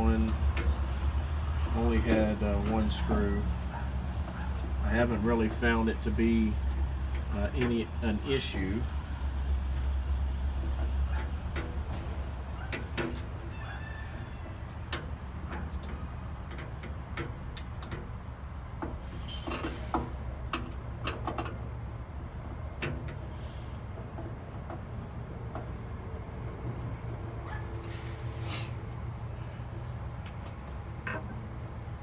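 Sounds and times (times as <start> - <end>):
metal clicks taps and scrapes: 14.8 - 18.2, 18.8 - 21.7, 22.7 - 26.2.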